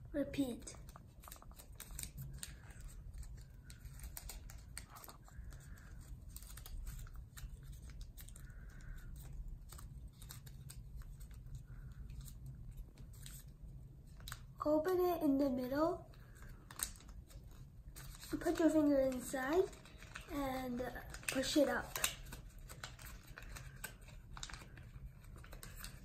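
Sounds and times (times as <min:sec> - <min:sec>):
paper rustling and crinkling: 0:00.7 - 0:14.5, 0:16.1 - 0:26.0.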